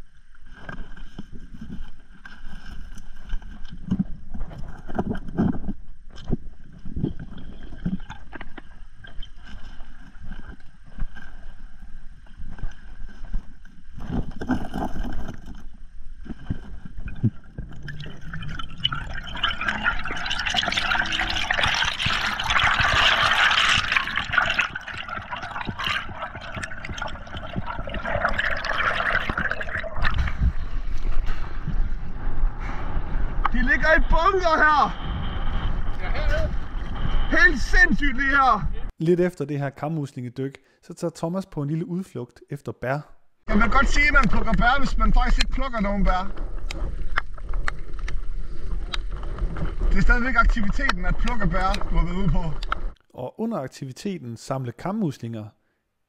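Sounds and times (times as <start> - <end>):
underwater knocks and thumps: 14.0 - 32.0
underwater rush of water: 16.9 - 32.4.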